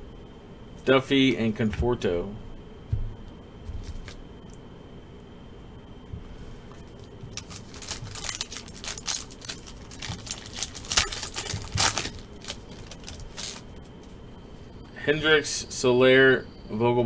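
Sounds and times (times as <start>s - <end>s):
foil wrapper tearing and crinkling: 7.3s - 13.7s.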